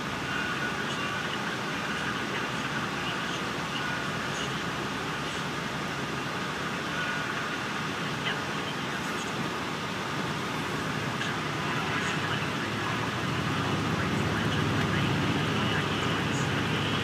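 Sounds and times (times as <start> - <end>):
bus diesel engine: 0.0 - 17.0
road noise: 0.0 - 17.0.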